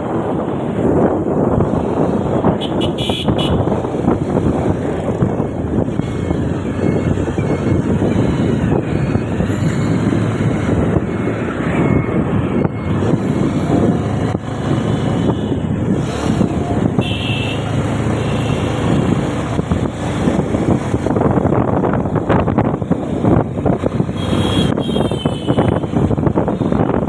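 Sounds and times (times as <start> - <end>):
wind buffeting microphone: 0.0 - 27.0.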